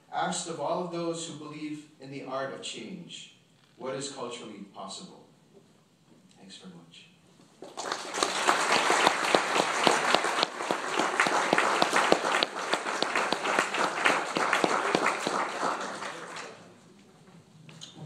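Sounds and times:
audience applauding: 7.6 - 16.8.

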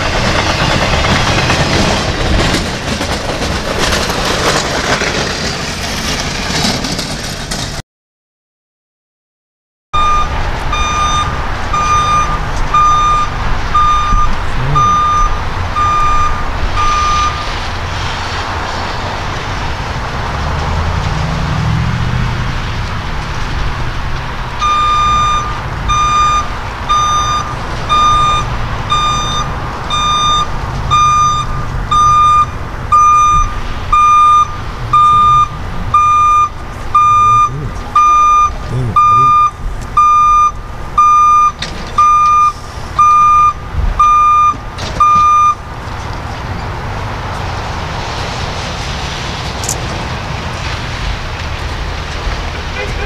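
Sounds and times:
railroad crossing bell clanging: 10.0 - 17.6, 24.6 - 45.6.

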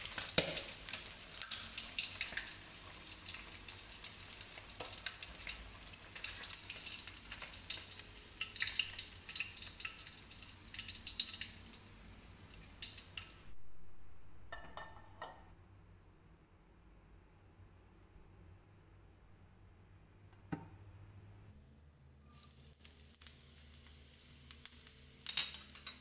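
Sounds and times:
oil sizzling in a wok: 0.0 - 13.6, 22.2 - 26.0.

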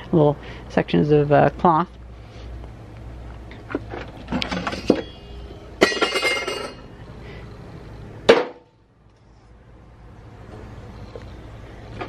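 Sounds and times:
small containers clattering: 3.6 - 5.0, 5.8 - 6.8
ringing clink: 5.8 - 6.8.

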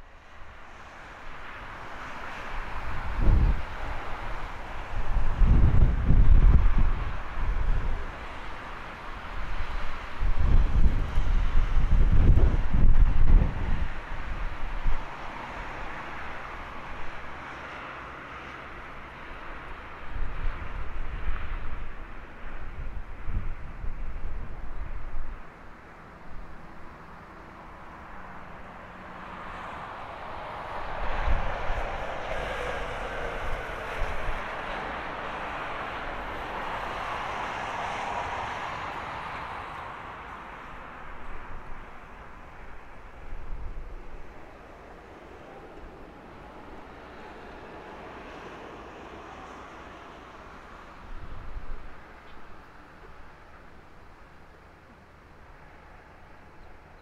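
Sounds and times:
wind rumbling on microphone: 0.0 - 55.0
wind thumps on microphone: 10.3 - 14.0
distant jet engine hiss: 24.5 - 57.0.

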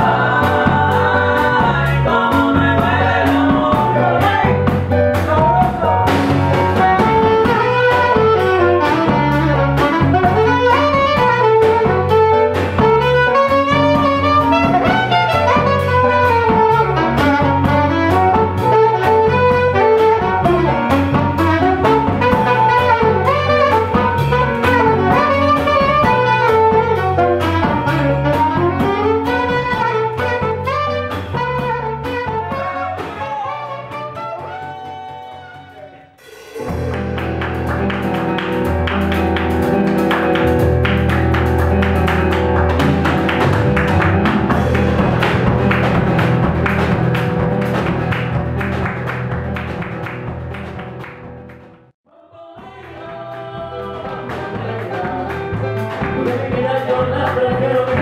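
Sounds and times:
live latin band playing: 0.0 - 52.0, 52.6 - 58.0
saxophone melody: 3.2 - 46.0.

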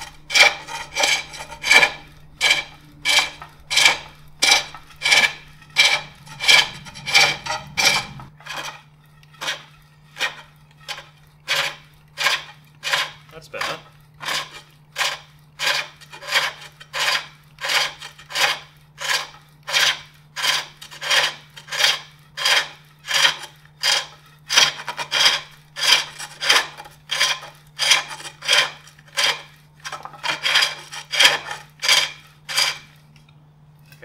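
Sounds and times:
hook tool scraping wood on lathe: 0.0 - 33.1.

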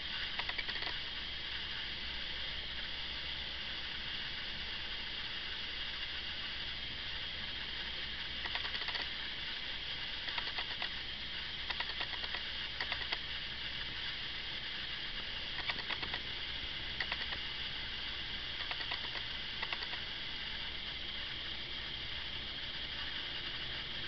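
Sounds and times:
recording hiss: 0.0 - 24.0
faint clicking: 0.3 - 1.0, 8.4 - 9.1, 10.2 - 11.0, 11.6 - 13.3, 15.5 - 16.3, 17.0 - 17.5, 18.5 - 20.1.

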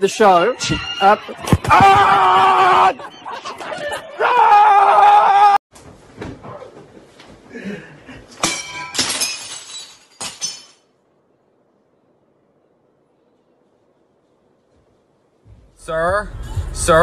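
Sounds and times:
loud held cry: 0.8 - 3.1, 4.0 - 5.6
crash with glass shattering: 8.4 - 10.9.

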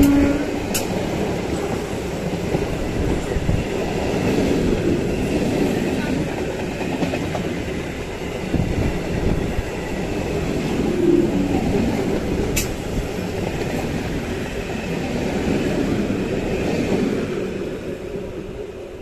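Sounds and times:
sharp click: 0.0 - 0.9
train wheels rumbling on rails: 0.0 - 19.0.

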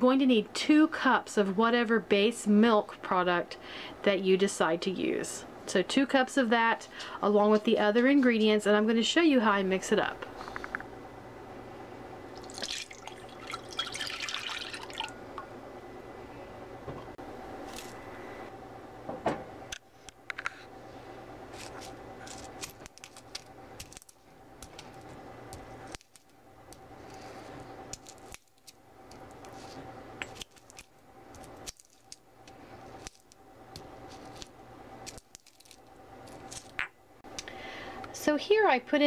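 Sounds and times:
pods cracking open: 21.6 - 24.8, 30.2 - 33.4, 34.1 - 36.8.

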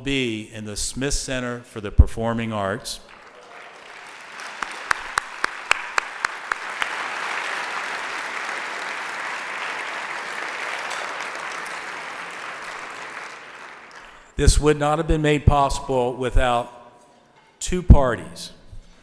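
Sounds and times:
sharp single claps: 3.1 - 14.3
audience applauding: 3.1 - 14.4.

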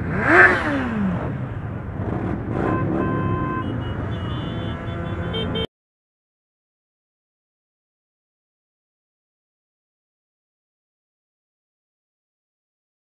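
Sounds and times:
motorbike passing by: 0.0 - 5.7
motorcycle traffic rumble: 0.0 - 5.7.

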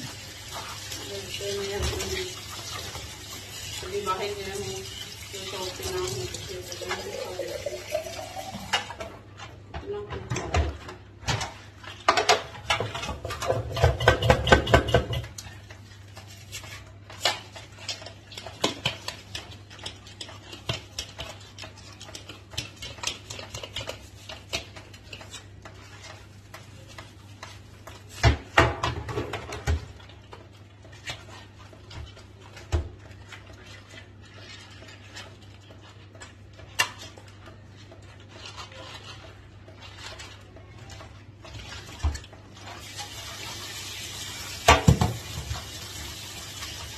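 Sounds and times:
plastic basket rattling in sink: 0.0 - 9.2, 9.8 - 15.4, 39.8 - 46.9.

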